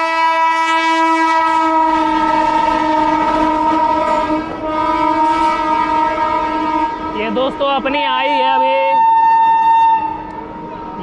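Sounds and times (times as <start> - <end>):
train horn long blast: 0.0 - 11.0
train wheels rumbling on rails: 0.0 - 11.0.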